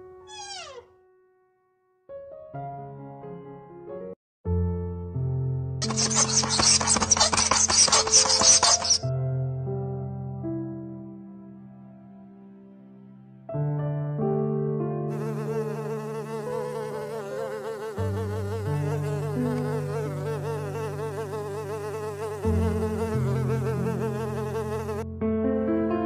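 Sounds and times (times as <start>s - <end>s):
honeybee buzzing: 0.3s - 0.8s, 5.8s - 9.0s, 15.1s - 25.0s.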